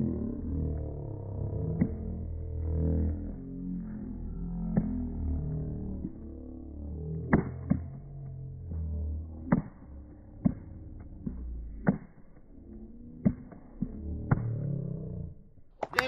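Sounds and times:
deep drawn-out droning: 0.0s - 16.0s.

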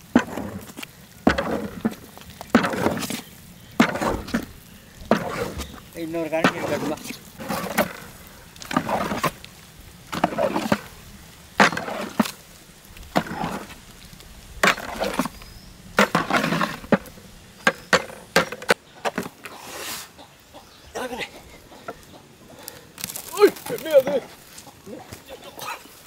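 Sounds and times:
wooden stick scraping metal pot: 0.0s - 9.4s, 10.1s - 12.4s, 13.1s - 13.9s, 14.6s - 20.1s.

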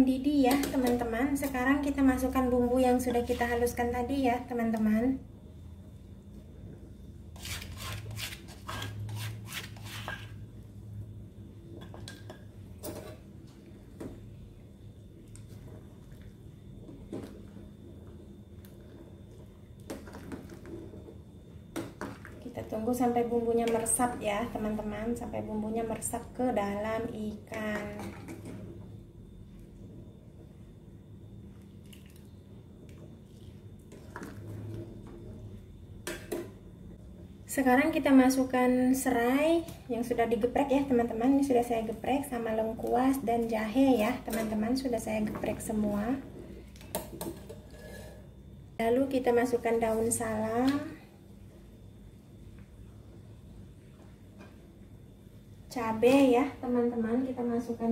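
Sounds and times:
spatula scraping and tapping pot: 7.4s - 10.4s.

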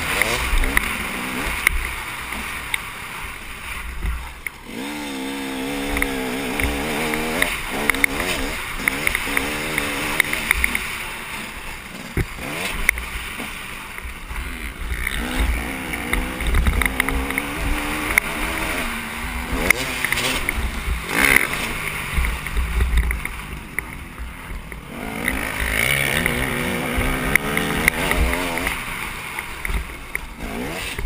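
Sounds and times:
dirt bike engine revving: 0.0s - 31.0s
sharp clicks: 5.8s - 10.9s, 15.0s - 24.1s, 24.7s - 31.0s.

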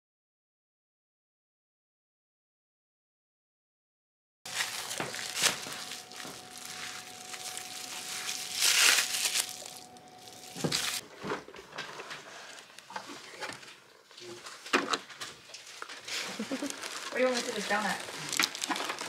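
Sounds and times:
faint steady tone: 4.5s - 11.0s
plastic cling wrap crinkling: 4.5s - 11.0s, 11.7s - 19.0s.

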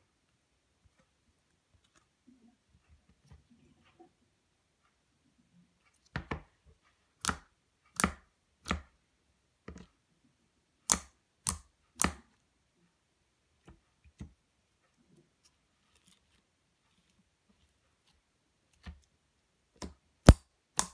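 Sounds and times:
sticky slime pops and clicks: 19.8s - 20.9s.

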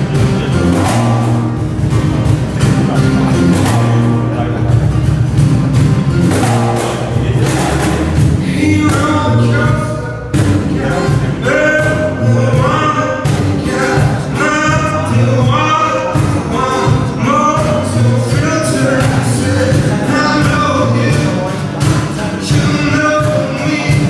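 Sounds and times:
acoustic guitars strummed: 0.0s - 24.0s
cajon beat: 0.0s - 24.0s
man singing: 6.4s - 24.0s.

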